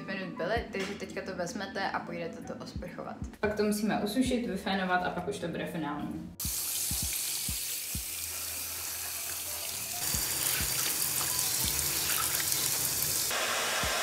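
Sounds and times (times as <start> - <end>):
shower spray on wet fabric: 6.4 - 14.0
hair dryer blowing: 13.3 - 14.0.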